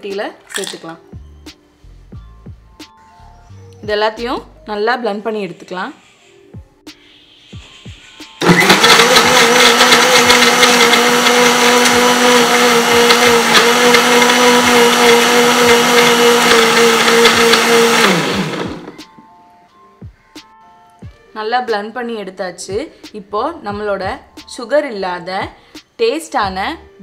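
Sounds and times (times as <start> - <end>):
ice clicking against jar: 0.5 - 0.8
mixer grinder motor: 8.4 - 19.0.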